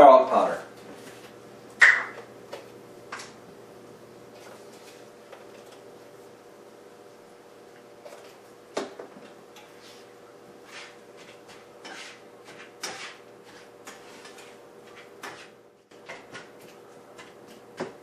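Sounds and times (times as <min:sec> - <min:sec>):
utensil scraping frying pan: 0:09.6 - 0:17.6.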